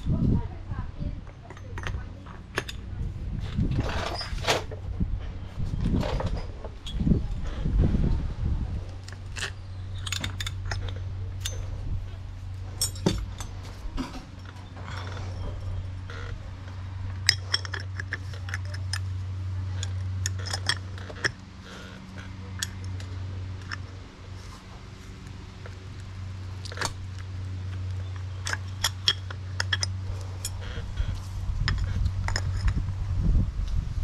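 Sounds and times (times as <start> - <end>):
steady low hum: 0.0 - 34.0
metal tools clinking: 1.2 - 4.8, 8.9 - 24.0, 24.6 - 32.8.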